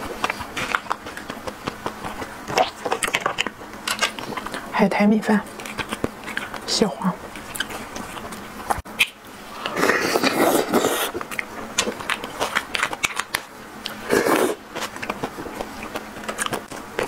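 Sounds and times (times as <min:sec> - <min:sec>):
wet mouth sounds: 0:07.4 - 0:16.7.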